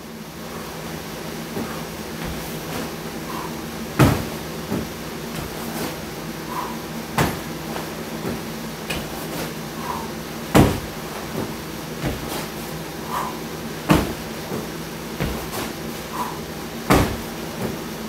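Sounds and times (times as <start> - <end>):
steady background hum: 0.0 - 18.0
sandbag heavy thuds: 1.5 - 17.9
loud knocks: 4.0 - 5.6, 10.5 - 12.3, 13.9 - 14.2, 16.9 - 17.3.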